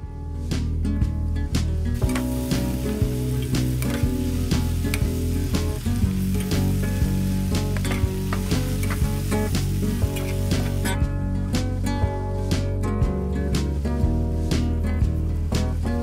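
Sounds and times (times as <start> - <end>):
background music: 0.0 - 16.0
food sizzling in a pan: 1.9 - 11.0.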